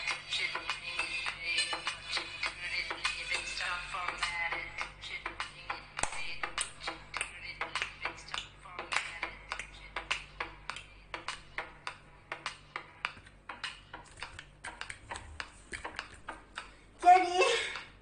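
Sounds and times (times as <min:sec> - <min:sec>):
faint background music: 0:00.0 - 0:18.0
sharp clicks and taps: 0:05.3 - 0:16.8.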